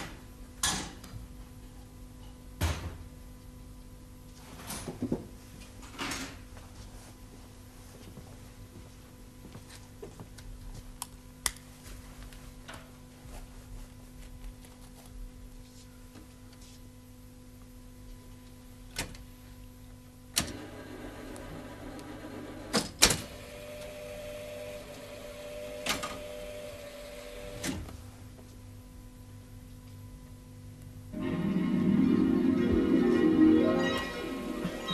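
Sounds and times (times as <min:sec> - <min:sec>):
electrical hum: 0:00.0 - 0:34.9
motor whirring with clunks: 0:20.4 - 0:28.0.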